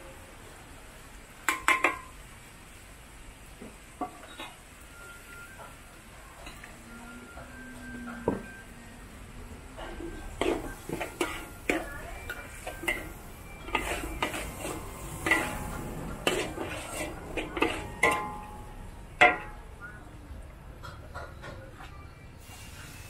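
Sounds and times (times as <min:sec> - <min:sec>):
metal spatula scraping steel wok: 0:10.0 - 0:19.6.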